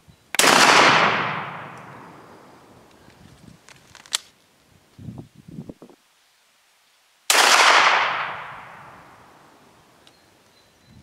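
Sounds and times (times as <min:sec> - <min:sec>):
shotgun shot: 0:00.4 - 0:02.3, 0:07.3 - 0:09.2.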